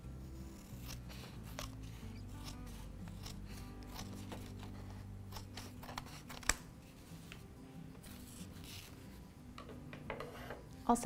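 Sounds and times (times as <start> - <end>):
scissors snipping: 0.5 - 6.7.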